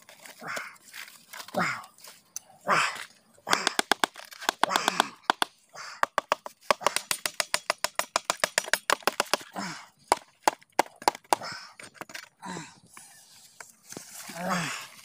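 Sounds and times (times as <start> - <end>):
knife tapping on bamboo tube: 3.5 - 9.4.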